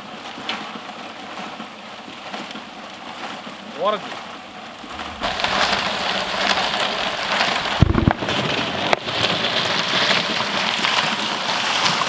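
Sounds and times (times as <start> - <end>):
steady hiss: 4.7 - 10.7.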